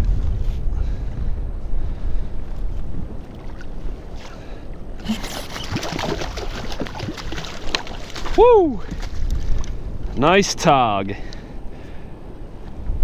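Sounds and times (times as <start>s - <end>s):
wind rumble on microphone: 0.0s - 13.0s
fish splashing in water: 5.0s - 9.2s.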